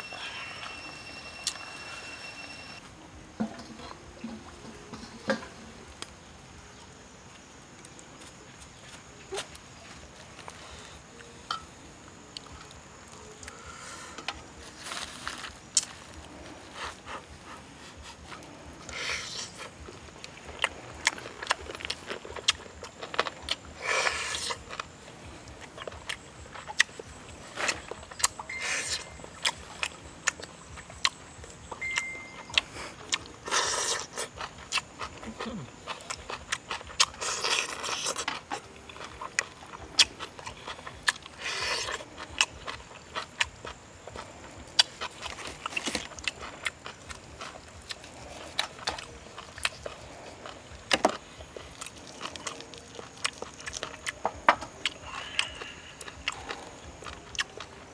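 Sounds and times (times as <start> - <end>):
chewing and lip-smacking: 15.7 - 57.9.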